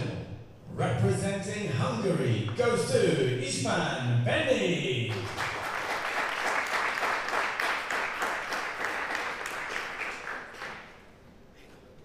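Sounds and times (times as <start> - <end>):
audience applauding: 5.1 - 11.1.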